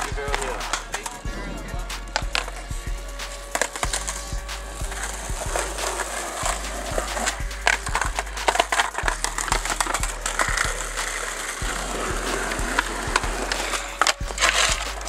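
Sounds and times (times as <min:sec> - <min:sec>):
skateboards clacking: 0:00.0 - 0:15.0
skateboard wheels rolling: 0:03.2 - 0:15.0.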